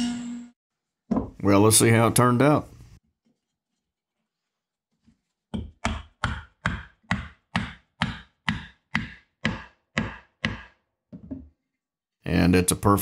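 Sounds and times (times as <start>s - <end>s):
mallet tapping wood: 5.5s - 10.7s.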